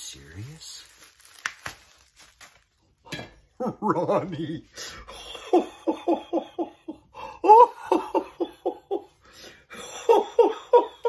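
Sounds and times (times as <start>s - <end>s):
man laughing: 3.6s - 11.0s.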